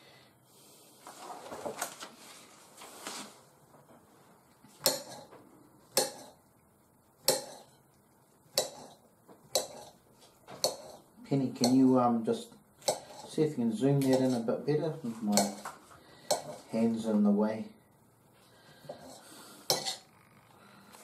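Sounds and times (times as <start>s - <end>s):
knife scraping on plate: 4.8s - 5.3s, 7.2s - 7.8s, 8.5s - 10.0s, 10.6s - 11.9s, 12.8s - 13.4s, 14.0s - 14.5s, 15.2s - 16.7s, 18.9s - 20.1s.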